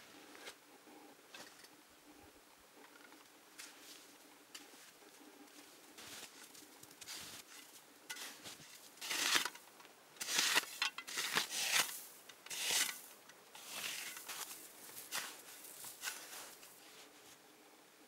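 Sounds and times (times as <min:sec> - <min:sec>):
snow shovel scraping snow: 0:07.0 - 0:09.6, 0:10.2 - 0:17.2.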